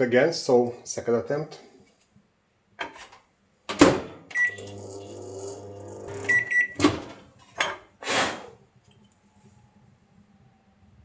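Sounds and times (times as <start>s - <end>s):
microwave beeps: 4.3s - 4.8s, 6.2s - 6.8s
microwave running hum: 4.4s - 6.8s.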